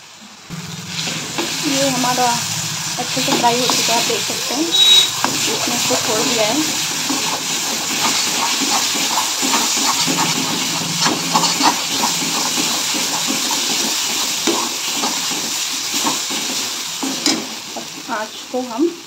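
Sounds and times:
masala sizzling in a pan: 0:00.0 - 0:19.0
metal spatula scraping pan: 0:00.6 - 0:17.9.

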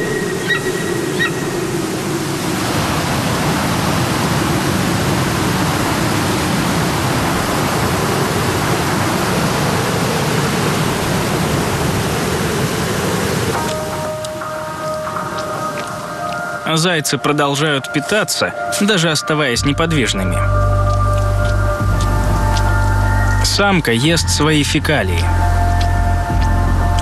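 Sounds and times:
steady rushing noise: 0:00.0 - 0:19.6.

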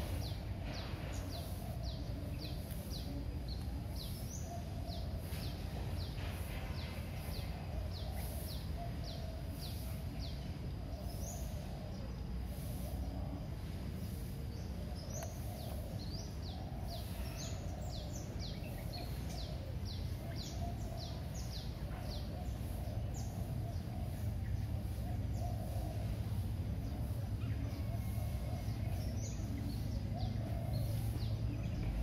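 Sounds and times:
small birds chirping: 0:00.0 - 0:32.0.

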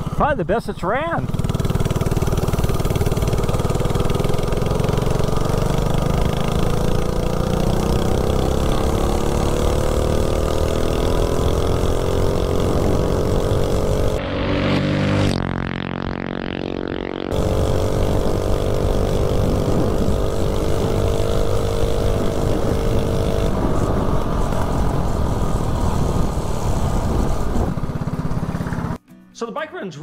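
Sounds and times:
small engine revving high: 0:01.0 - 0:29.0
wind rush: 0:19.2 - 0:21.1, 0:22.0 - 0:29.0.

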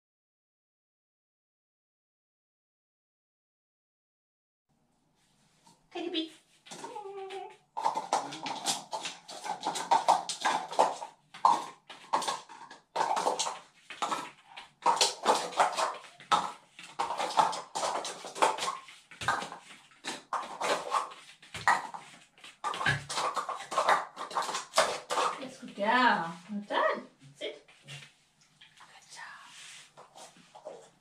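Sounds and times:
plastic cups clattering: 0:07.8 - 0:25.9.

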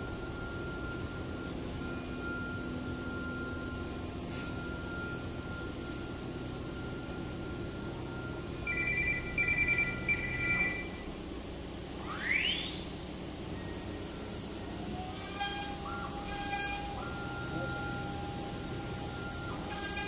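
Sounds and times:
spindle motor whine rising: 0:00.0 - 0:20.0
router motors whining in stepped tones: 0:11.9 - 0:20.0.

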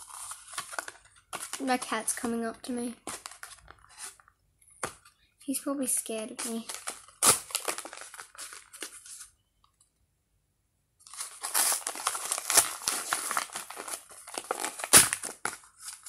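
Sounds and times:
packet crinkling: 0:00.0 - 0:04.1, 0:06.4 - 0:09.4, 0:11.0 - 0:16.0.

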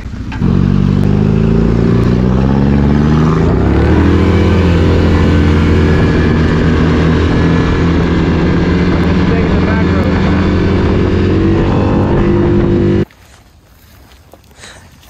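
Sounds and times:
atv engine running: 0:00.0 - 0:13.0
wind rushing: 0:01.5 - 0:13.0.

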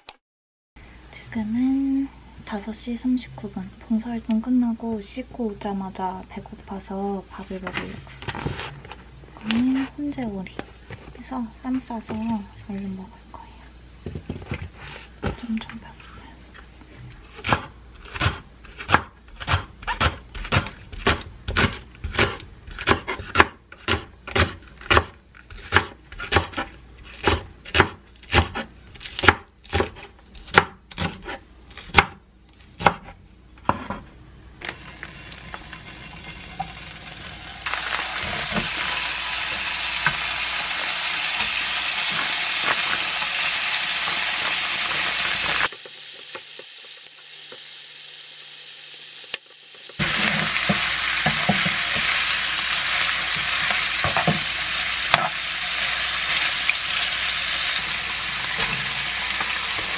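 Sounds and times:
knife chopping on wooden board: 0:17.4 - 0:32.2, 0:32.8 - 0:34.0
meat sizzling in a frying pan: 0:34.6 - 0:59.9.

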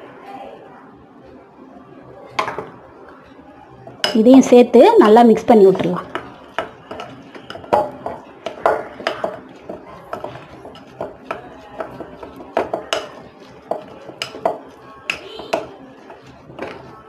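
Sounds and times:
metal spoon clinking on glass bowl: 0:06.1 - 0:15.8.

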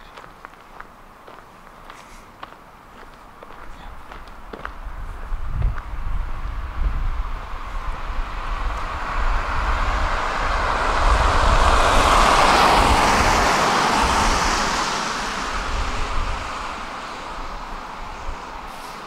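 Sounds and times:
vehicle passing by: 0:04.6 - 0:19.0.

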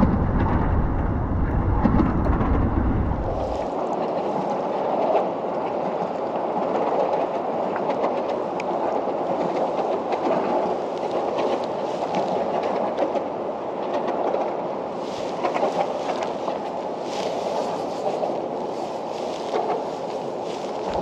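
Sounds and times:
road traffic rumble: 0:00.0 - 0:03.6.

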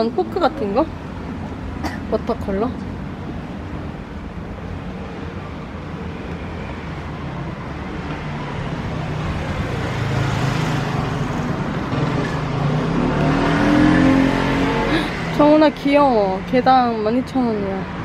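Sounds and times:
street traffic noise: 0:00.0 - 0:18.0
car engine approaching: 0:07.1 - 0:16.6.

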